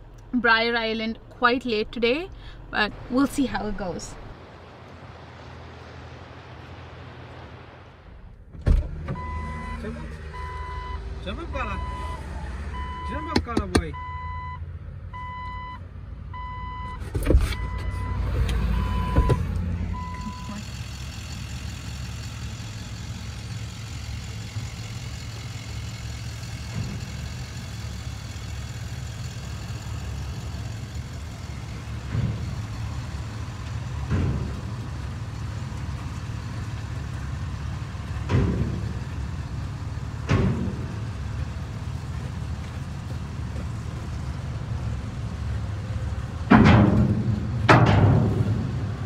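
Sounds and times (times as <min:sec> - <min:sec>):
car engine at low revs: 0:00.0 - 0:49.0
tyres thumping over ramp joints: 0:31.0 - 0:44.0, 0:46.1 - 0:49.0.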